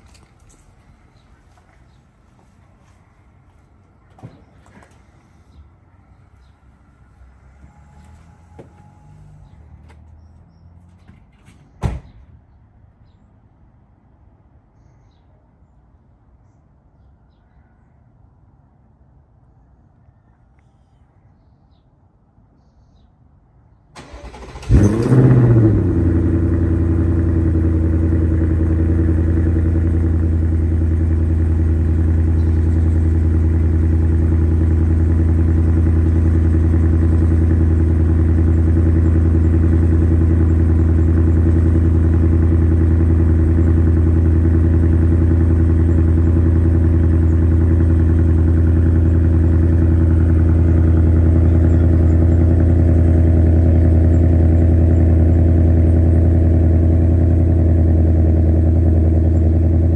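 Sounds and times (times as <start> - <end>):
car engine idling: 24.0 - 59.9.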